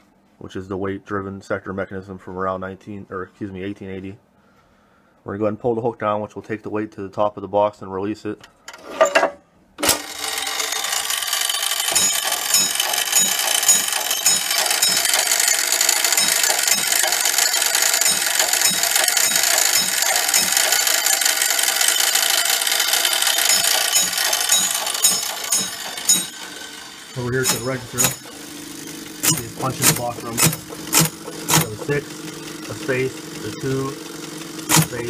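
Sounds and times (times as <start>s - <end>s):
gear train whirring: 9.8s - 35.0s.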